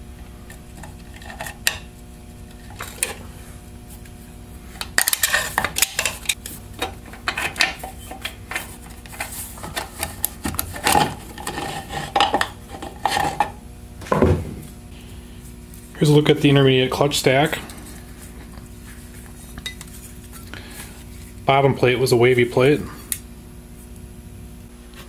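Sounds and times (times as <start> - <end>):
metal parts clicking and clinking: 5.0 - 8.4.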